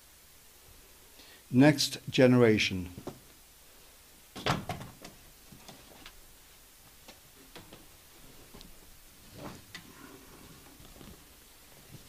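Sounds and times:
rustle and knock: 4.3 - 12.0.

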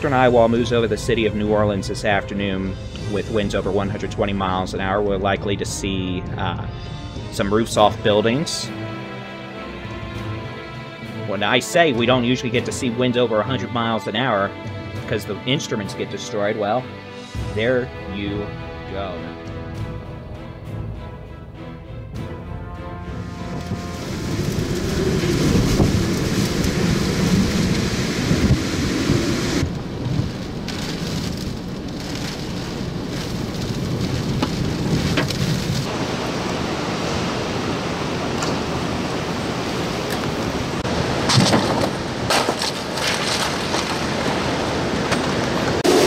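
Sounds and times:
heavy wind-driven rain: 0.0 - 11.3, 22.9 - 46.0
wind: 0.0 - 46.0.

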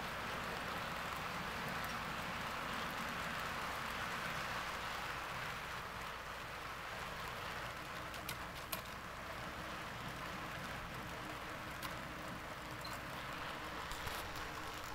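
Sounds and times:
model train wheels rolling on rails: 0.0 - 14.9.

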